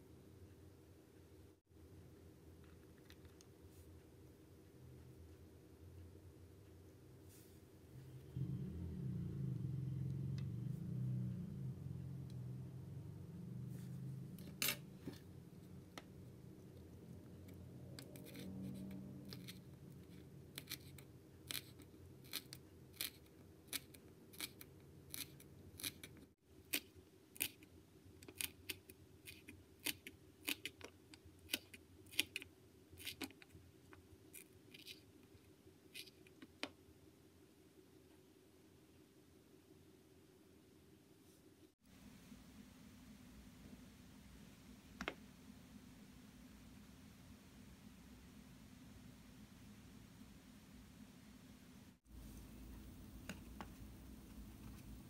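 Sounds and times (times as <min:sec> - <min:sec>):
low hum: 0:07.3 - 0:20.5.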